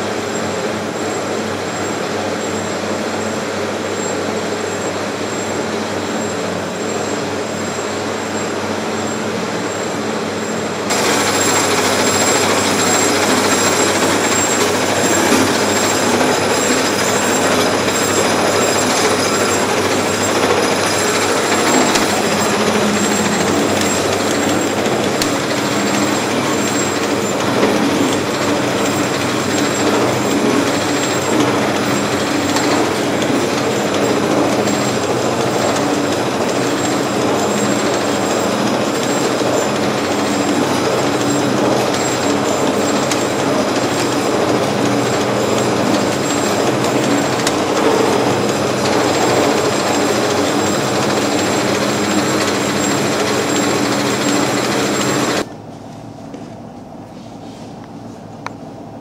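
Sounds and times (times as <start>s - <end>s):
meat tenderising machine rumbling: 10.9s - 55.5s.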